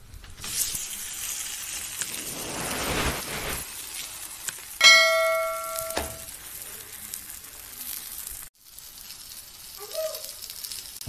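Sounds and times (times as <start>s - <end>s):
dough sizzling on griddle: 0.0s - 11.0s
metallic ring: 4.8s - 6.3s.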